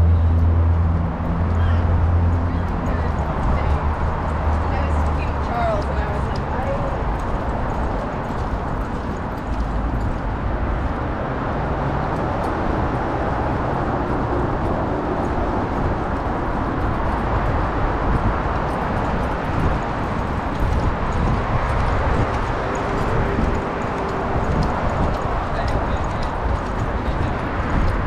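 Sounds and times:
road traffic on bridge: 0.0s - 28.0s.

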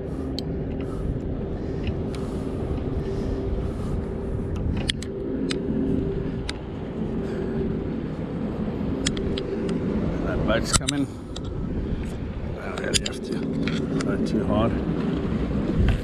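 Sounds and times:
engine hum: 0.0s - 16.0s
low rumble: 0.0s - 16.0s
light clicks: 9.0s - 9.8s.

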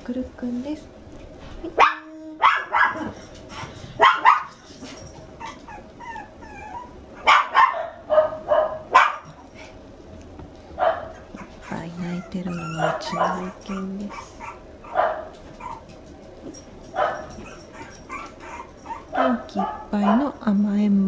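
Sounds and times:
puppy yipping and barking: 1.8s - 3.2s, 4.0s - 4.6s, 5.4s - 9.4s, 10.8s - 20.2s
puppy whining: 1.9s - 8.5s, 11.0s - 20.3s.

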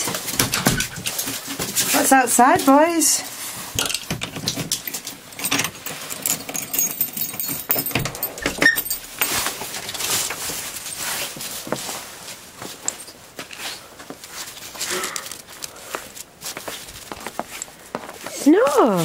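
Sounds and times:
keys jangling: 3.8s - 11.0s
door latch rattling: 6.4s - 9.2s.

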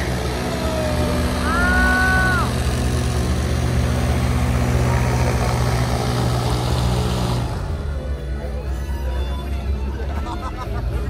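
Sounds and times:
boat engines droning: 0.0s - 11.0s
person shouting: 0.5s - 2.6s.

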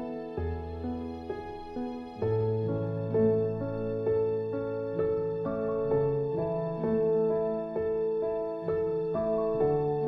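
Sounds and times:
gentle music of held chords: 0.0s - 10.0s.

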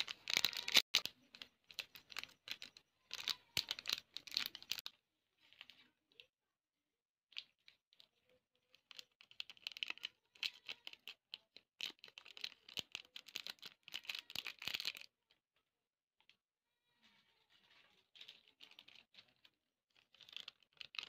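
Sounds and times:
dense irregular crackling: 0.0s - 5.9s.

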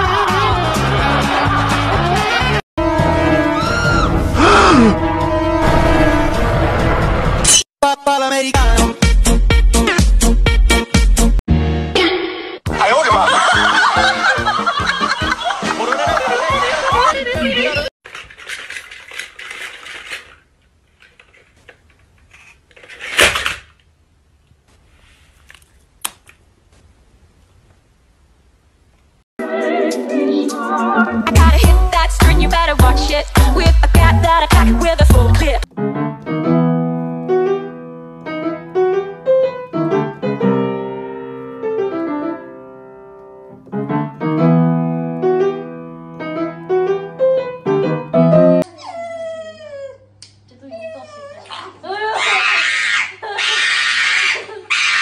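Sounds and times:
slow piano music: 35.7s - 48.7s.

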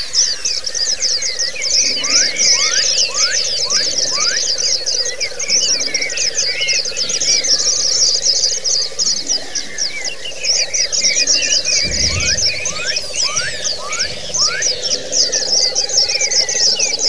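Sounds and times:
birds chirping and trilling: 0.0s - 17.0s
low rising whistles: 0.0s - 17.0s
steady low hum: 0.0s - 17.0s.

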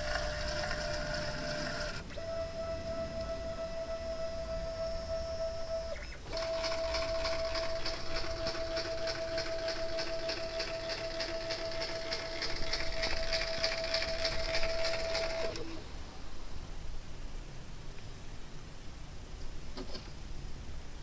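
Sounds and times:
machine motors whining: 0.0s - 15.8s.

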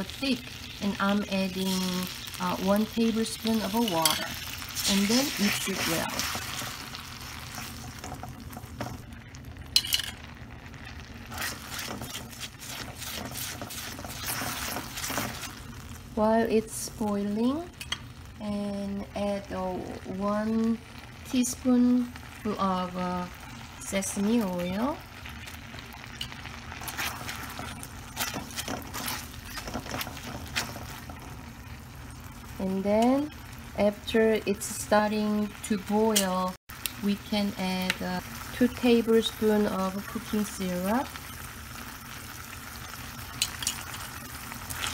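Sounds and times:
utensil scraping sauce in pan: 4.0s - 9.0s, 11.2s - 15.6s, 26.0s - 31.4s.

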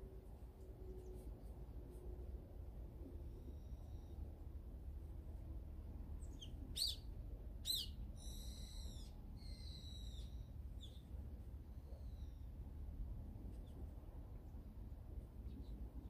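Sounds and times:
bird calling: 7.6s - 10.9s.

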